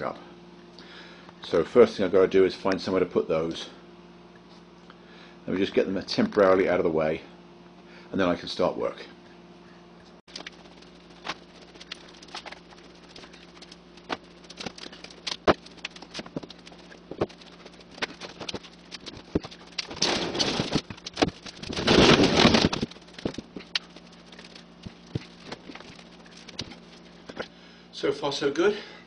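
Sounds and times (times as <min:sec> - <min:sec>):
footsteps: 0:10.3 - 0:27.4
scraping and rustling: 0:10.3 - 0:27.5.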